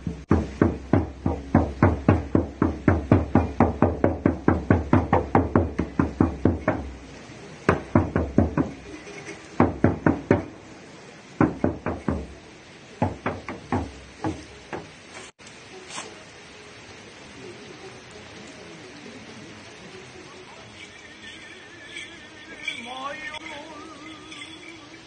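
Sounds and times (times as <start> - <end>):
frame drum struck with beater: 0.0 - 7.1, 7.7 - 9.0, 9.6 - 10.6, 11.4 - 15.0.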